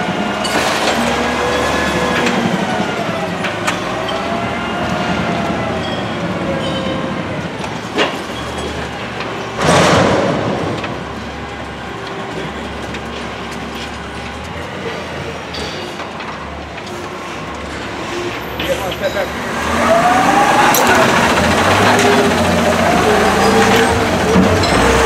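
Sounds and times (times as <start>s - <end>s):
truck hydraulics working: 16.8s - 25.0s.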